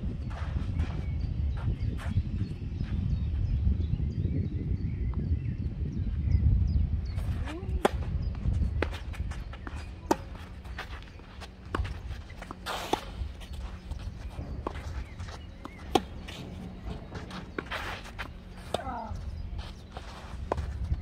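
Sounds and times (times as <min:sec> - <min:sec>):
shoes scuffing on clay: 0:00.2 - 0:03.0, 0:07.2 - 0:21.0
tennis ball bouncing: 0:08.8 - 0:20.7
tennis racket hitting ball: 0:11.7 - 0:19.0.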